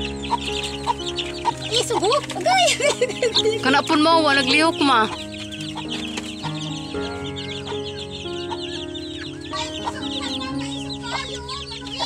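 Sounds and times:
chicks peeping: 0.0s - 12.0s
low clucking calls: 0.0s - 12.0s
soft background music: 0.0s - 12.0s.

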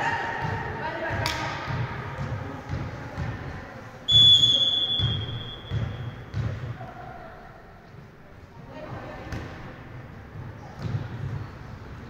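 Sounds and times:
referee's whistle blast: 4.1s - 6.2s.

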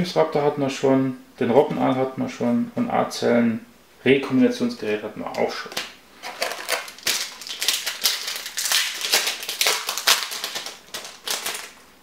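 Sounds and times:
cards being handled: 5.3s - 11.8s
foil wrapper crinkling and tearing: 6.2s - 11.8s.

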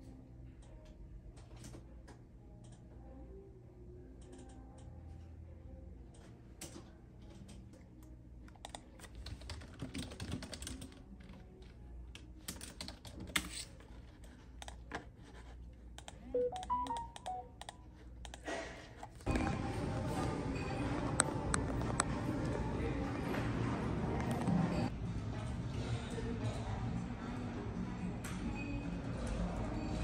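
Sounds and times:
computer keyboard typing: 8.5s - 11.6s, 12.2s - 14.8s, 16.0s - 18.4s.

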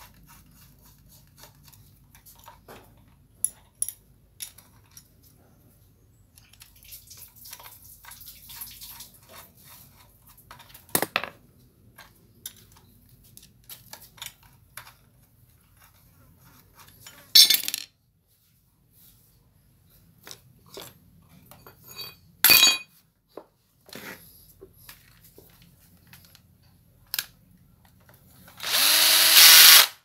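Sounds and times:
screwdriver and bolts clinking: 17.0s - 17.9s, 20.3s - 22.9s.

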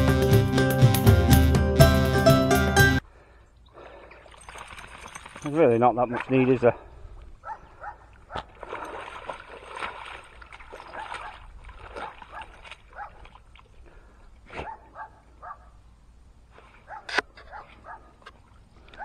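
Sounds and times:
splashing of muddy water: 3.7s - 7.0s, 8.2s - 14.2s.

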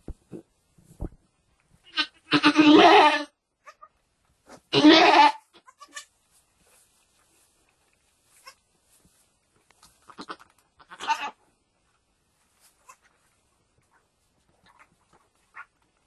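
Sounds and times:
goat bleating: 1.9s - 3.9s, 4.7s - 6.1s, 10.1s - 11.4s.

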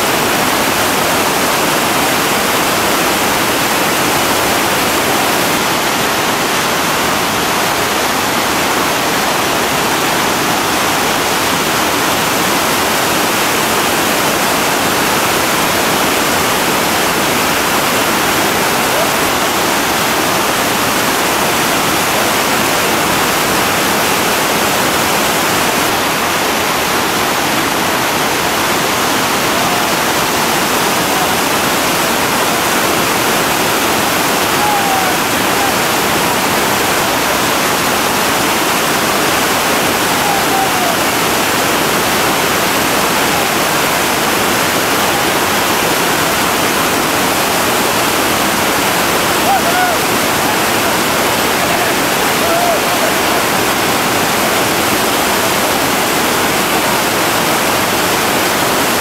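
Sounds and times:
river rapids rushing: 0.0s - 59.0s.

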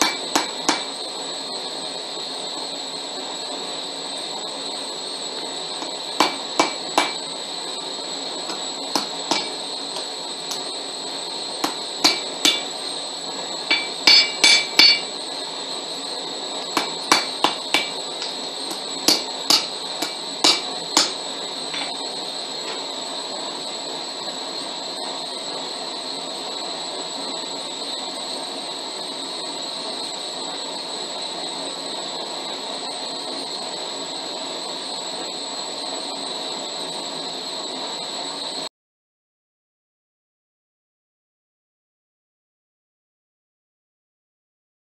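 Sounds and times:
hammer striking iron on anvil: 0.0s - 0.9s, 5.8s - 7.3s, 8.5s - 10.7s, 11.6s - 12.8s, 13.7s - 15.1s, 16.7s - 22.0s
steady hiss: 0.0s - 38.6s.

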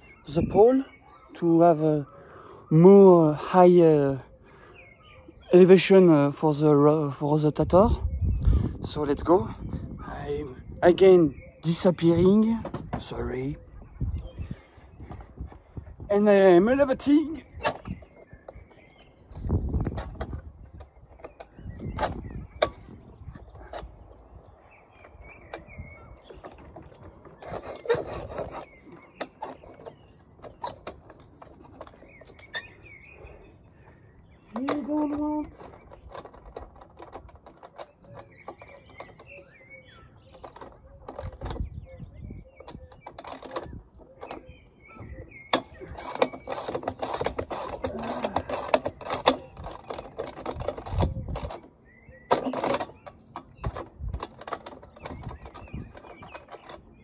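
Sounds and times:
knocks and clicks: 11.8s - 13.2s, 16.7s - 24.2s, 33.9s - 39.4s, 40.2s - 57.0s
metal mast scraping in clamp: 25.1s - 33.2s, 42.8s - 57.0s.

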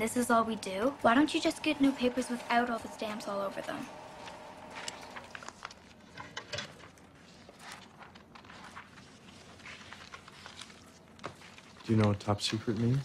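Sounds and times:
paper rustling: 4.2s - 13.0s.

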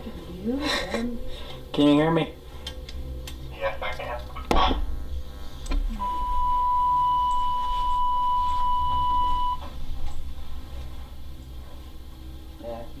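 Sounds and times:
low background hum: 0.0s - 13.0s
high electronic beep: 6.0s - 9.6s.

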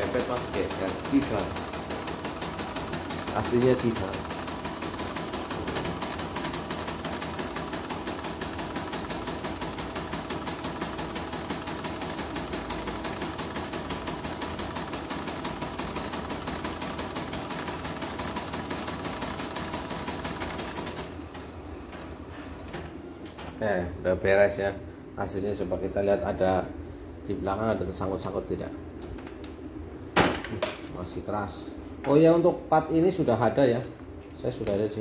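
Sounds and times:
embroidery machine needle clatter: 0.0s - 21.1s.

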